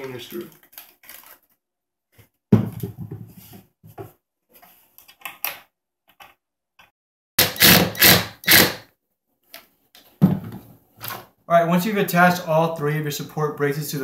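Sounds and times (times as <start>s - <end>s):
cordless drill motor running: 7.4s - 8.8s.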